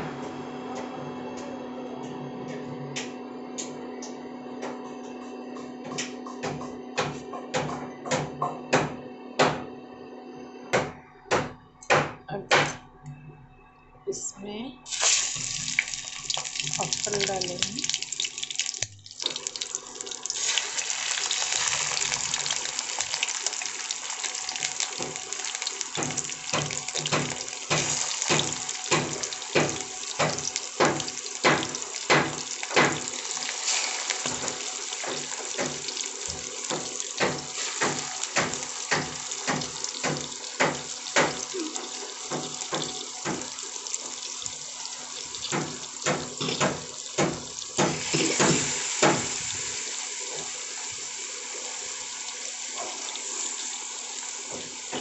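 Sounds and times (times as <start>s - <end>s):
hot oil sizzling in a frying pan: 14.9s - 55.0s.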